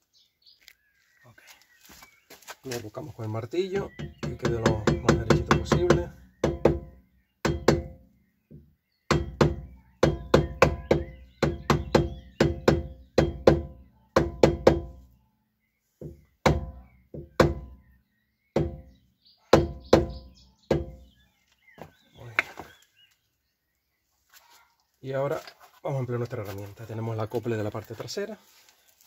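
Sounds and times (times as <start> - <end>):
mallet knocking metal: 7.5 - 8.0, 16.5 - 17.7, 18.6 - 18.9.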